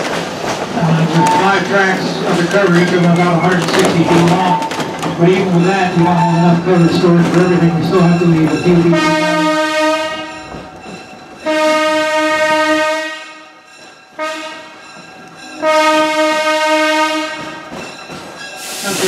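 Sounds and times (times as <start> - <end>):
locomotive horn blasts: 8.9 - 10.6, 11.4 - 13.6, 14.2 - 14.8, 15.6 - 17.7.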